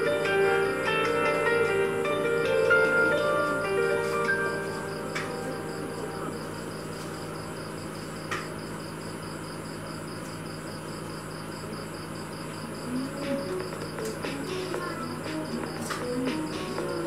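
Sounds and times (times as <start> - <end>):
fish tank equipment hum: 3.0 - 16.0.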